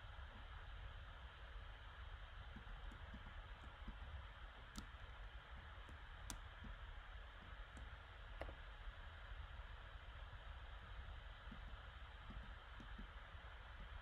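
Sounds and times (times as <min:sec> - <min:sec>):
faint low hum: 0:00.0 - 0:14.0
computer mouse clicks: 0:02.5 - 0:08.6, 0:11.5 - 0:13.2.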